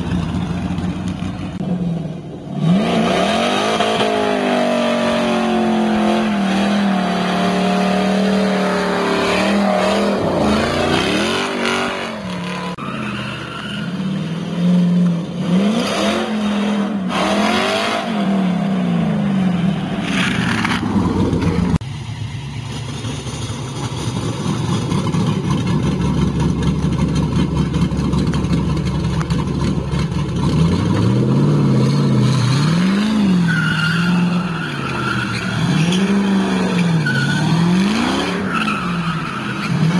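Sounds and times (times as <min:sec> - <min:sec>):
car engine revving hard: 0:02.6 - 0:12.8, 0:15.4 - 0:19.1
tyres squealing: 0:32.8 - 0:39.9.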